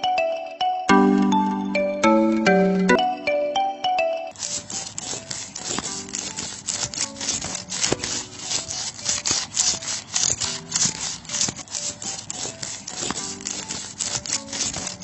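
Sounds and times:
hand saw rasping: 4.4s - 15.0s.

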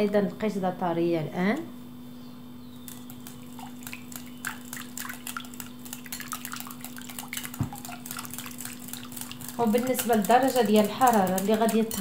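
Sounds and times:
low steady hum: 0.0s - 12.0s
whisk clicking against glass bowl: 2.9s - 12.0s.

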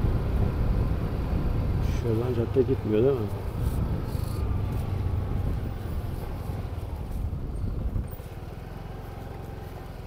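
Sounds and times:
vehicle engine and road rumble: 0.0s - 10.0s.

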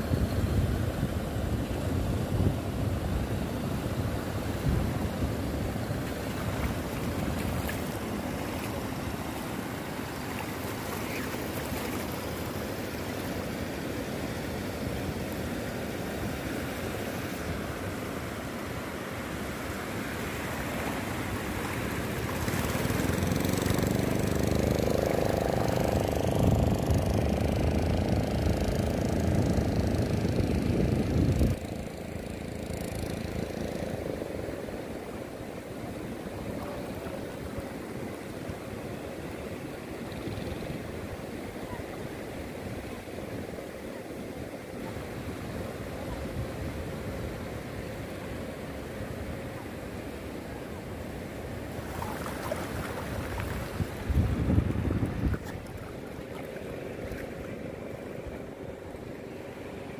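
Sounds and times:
wind on microphone: 0.0s - 8.9s, 20.8s - 32.3s, 51.8s - 57.4s
sea surf washing: 0.0s - 59.9s
engine drone: 3.3s - 41.5s.

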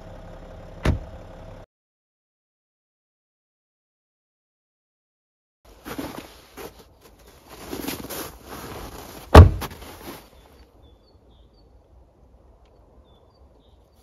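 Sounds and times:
rustling and handling noise: 5.7s - 10.6s
loud sharp thump: 9.3s - 9.7s.

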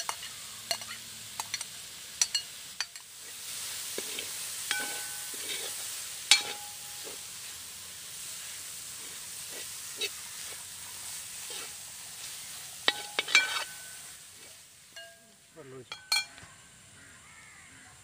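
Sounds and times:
steady hiss: 0.0s - 18.0s
metal spoon scraping pot: 4.0s - 6.8s, 12.9s - 14.0s.

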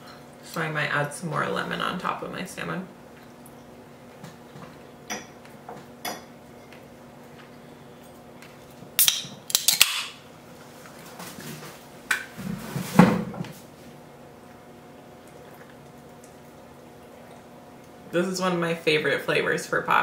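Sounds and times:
soda can opening with hiss: 9.0s - 10.1s.

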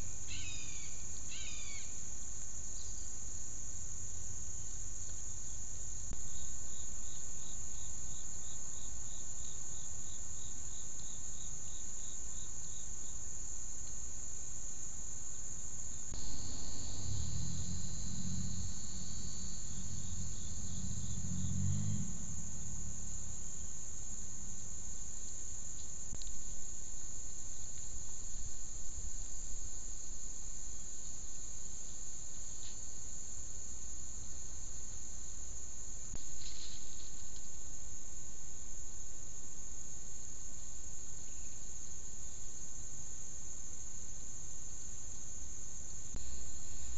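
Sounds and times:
insects shrilling: 0.0s - 2.0s, 16.0s - 24.2s
low droning hum: 15.9s - 30.6s
high pulsing chirp: 16.2s - 23.9s.

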